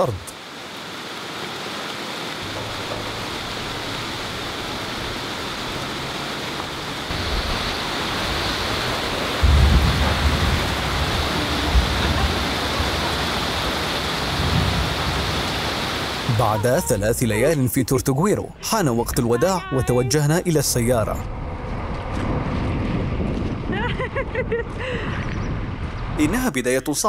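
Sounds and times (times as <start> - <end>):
heavy rain pouring: 0.0 - 21.2, 24.8 - 27.0
low rumble: 20.6 - 26.6.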